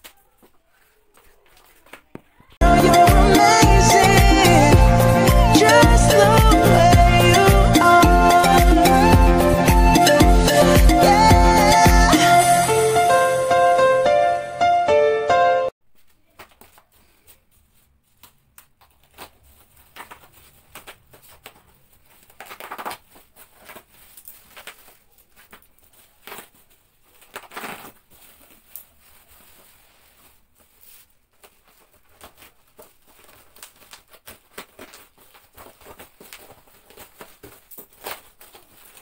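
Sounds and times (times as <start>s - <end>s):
packaging rustling and crinkling: 16.0s - 39.0s
packaging tearing: 18.9s - 29.7s, 31.5s - 39.0s.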